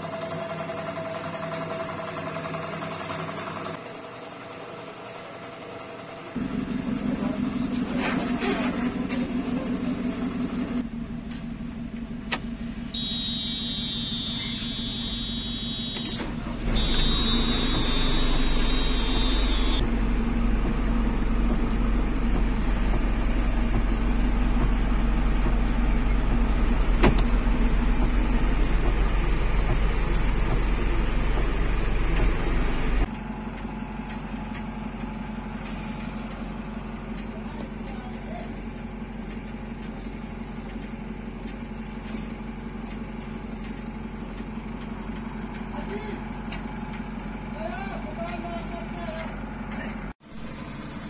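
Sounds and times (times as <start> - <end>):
diesel engine running: 0.0 - 51.0
steady high-pitched tone: 16.7 - 19.8.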